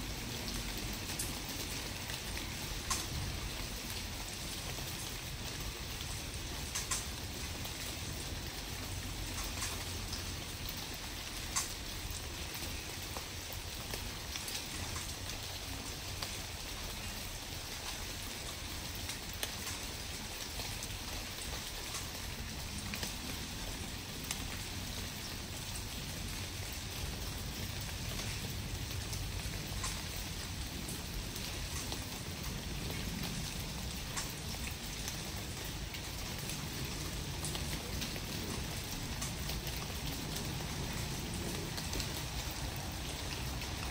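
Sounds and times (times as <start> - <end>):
light ticks: 2.8 - 3.2, 6.6 - 7.3, 9.2 - 10.2, 11.5 - 11.8, 21.4 - 22.2, 29.7 - 30.1, 34.1 - 34.4.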